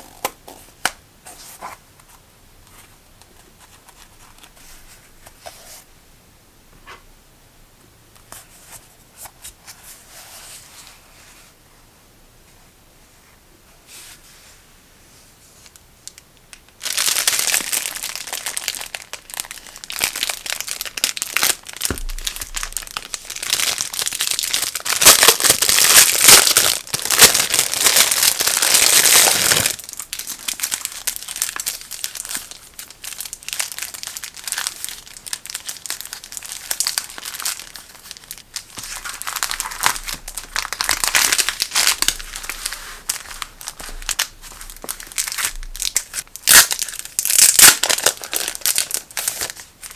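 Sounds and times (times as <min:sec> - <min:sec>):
plastic packaging crinkling: 0:16.0 - 0:49.9.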